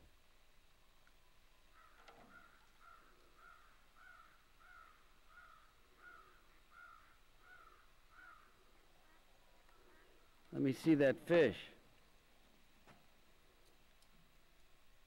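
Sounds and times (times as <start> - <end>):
faint bird calls: 1.6 - 10.5.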